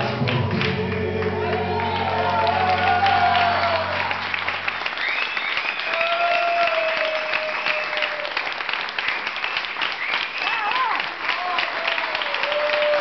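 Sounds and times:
audience applauding: 0:00.0 - 0:13.0
long whistle: 0:04.9 - 0:06.2, 0:09.4 - 0:10.6.

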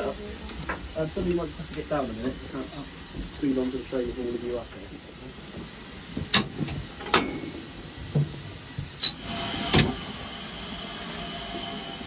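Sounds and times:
steady steam hiss: 0:00.0 - 0:12.0
short high squeak: 0:09.0 - 0:09.2.

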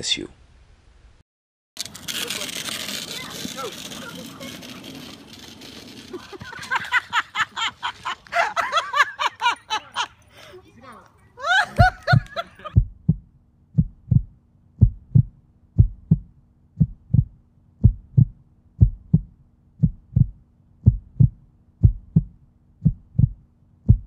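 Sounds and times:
heartbeat thumps: 0:11.8 - 0:24.0.

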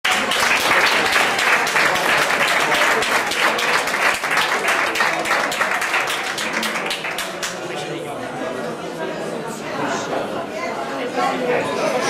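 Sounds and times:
people applauding: 0:00.0 - 0:08.0.

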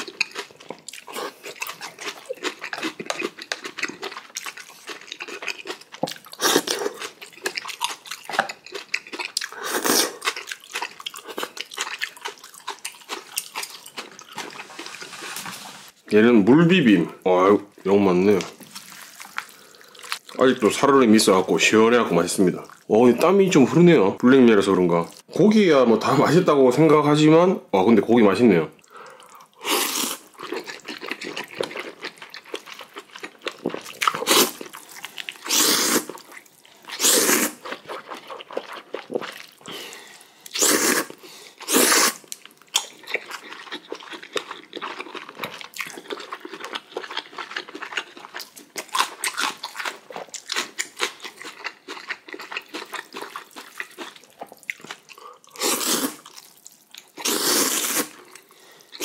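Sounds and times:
wet chewing: 0:00.0 - 0:15.6, 0:18.2 - 0:20.8, 0:28.8 - 0:59.0
noodle slurping: 0:33.7 - 0:42.3, 0:55.2 - 0:56.4, 0:57.2 - 0:58.2.

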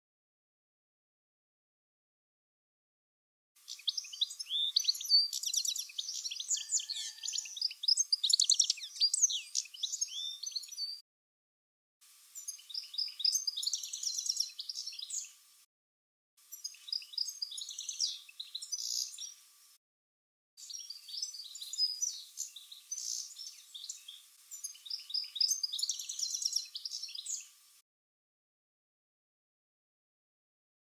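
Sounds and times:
goldfinch singing: 0:03.6 - 0:11.0, 0:12.4 - 0:15.4, 0:16.5 - 0:19.4, 0:20.6 - 0:27.5.

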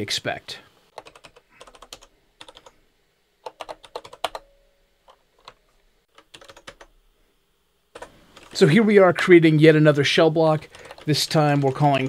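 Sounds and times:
computer keyboard typing: 0:00.9 - 0:02.8, 0:03.4 - 0:04.5, 0:05.1 - 0:06.9, 0:08.0 - 0:08.6, 0:10.6 - 0:12.0.

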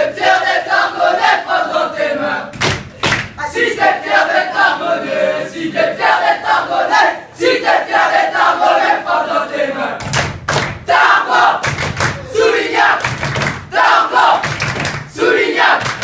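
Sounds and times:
boys chanting and shouting: 0:10.8 - 0:13.1.

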